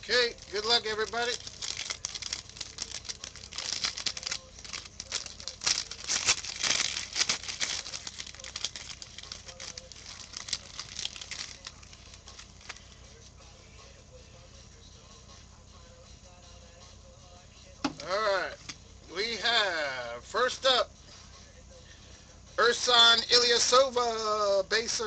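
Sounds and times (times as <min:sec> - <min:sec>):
foil wrapper crinkling and tearing: 0:00.0 - 0:13.0.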